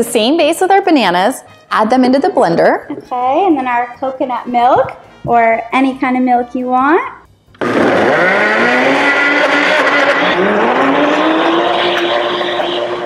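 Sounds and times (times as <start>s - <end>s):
blender motor grinding: 7.6s - 13.0s.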